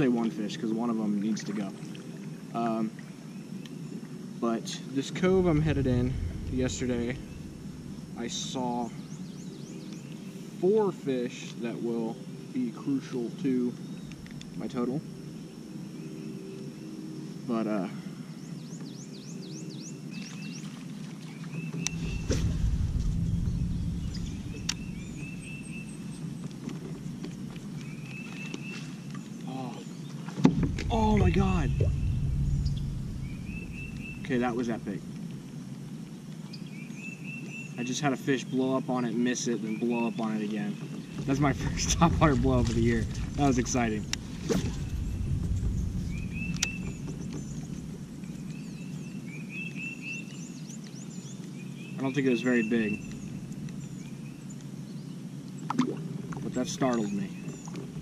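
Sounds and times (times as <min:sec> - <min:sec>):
low handling rumble: 0:05.0 - 0:10.6, 0:21.8 - 0:28.2, 0:30.3 - 0:35.7, 0:41.0 - 0:49.2
bird chirping: 0:05.1 - 0:10.5, 0:21.4 - 0:35.5, 0:39.5 - 0:55.2.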